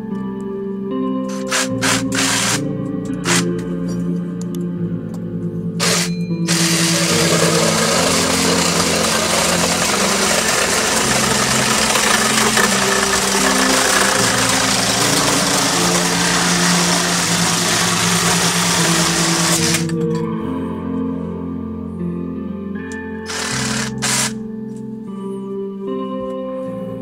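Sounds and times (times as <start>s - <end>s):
reciprocating saw cutting wood: 1.3s - 2.6s, 3.2s - 3.5s, 5.8s - 20.0s, 23.3s - 24.4s.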